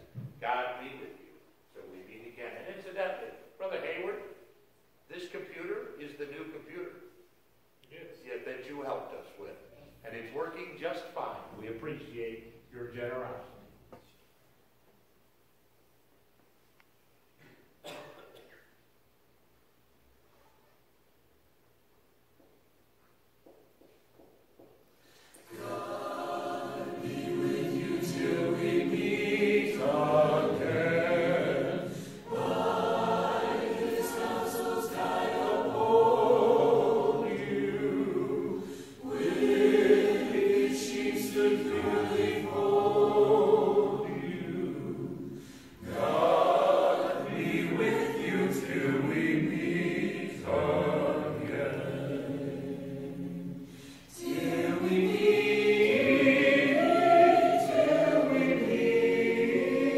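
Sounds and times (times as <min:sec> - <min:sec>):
choir singing: 0:25.4 - 0:59.9.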